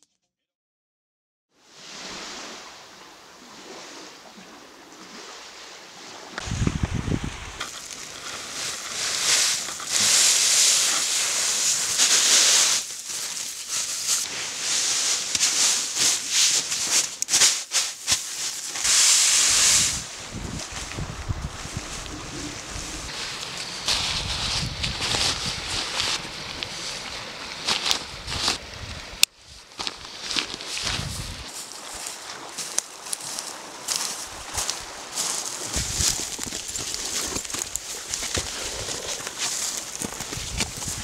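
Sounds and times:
wind and surf rushing: 1.7 - 29.2, 30.0 - 41.0
wind rumble on microphone: 6.4 - 7.6, 19.7 - 23.1, 23.9 - 26.7, 28.0 - 29.6, 30.8 - 31.6, 34.2 - 36.6, 40.0 - 41.0.

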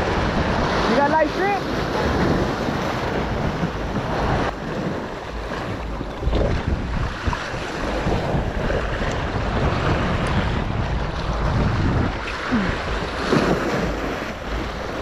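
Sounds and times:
waves washing against rocks: 0.0 - 15.0
wind buffeting microphone: 0.0 - 15.0.

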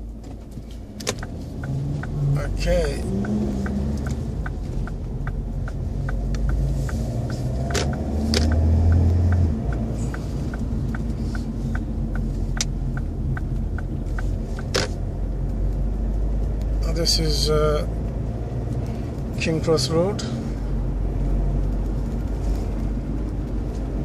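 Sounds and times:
car engine and road rumble: 0.0 - 24.0
car turn indicator ticking: 0.0 - 24.0.

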